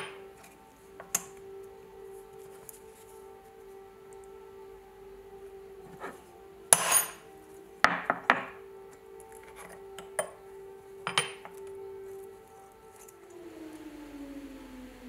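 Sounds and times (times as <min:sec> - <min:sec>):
air-raid siren steady tone: 0:00.0 - 0:15.0.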